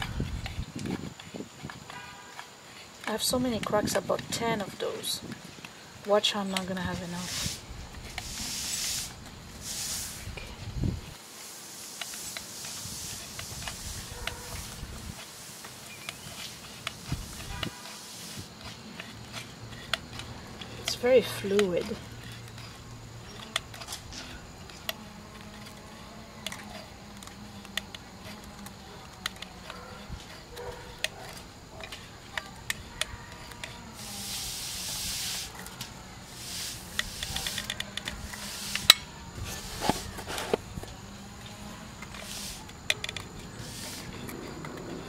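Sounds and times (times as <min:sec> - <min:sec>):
hissing spurt: 0:07.1 - 0:10.4, 0:11.2 - 0:18.5, 0:33.9 - 0:39.0, 0:42.1 - 0:42.7, 0:43.6 - 0:44.3.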